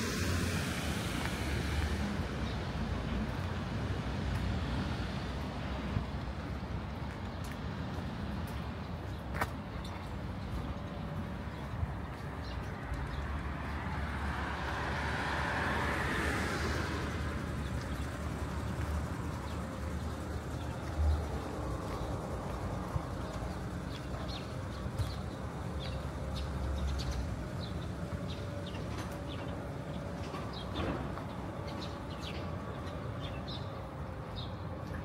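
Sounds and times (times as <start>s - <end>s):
tyres hissing on wet road: 0.0s - 3.0s
low traffic rumble: 0.0s - 35.0s.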